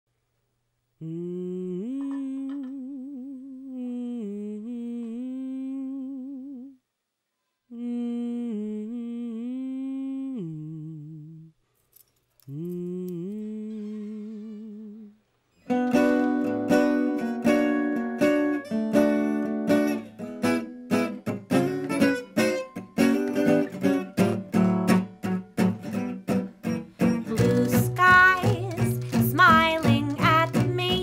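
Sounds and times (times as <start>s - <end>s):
person humming a slow melody: 1.0s - 6.8s, 7.7s - 11.6s, 12.4s - 15.2s.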